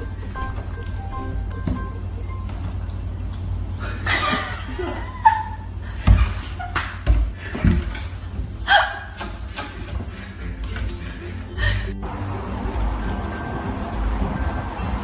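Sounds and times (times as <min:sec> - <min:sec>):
person laughing: 0:00.0 - 0:02.5, 0:03.8 - 0:06.9.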